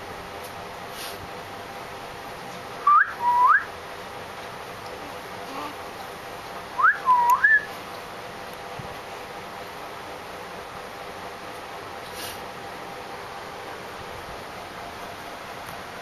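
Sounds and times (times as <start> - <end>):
person whistling: 2.9 - 3.7, 6.8 - 7.7.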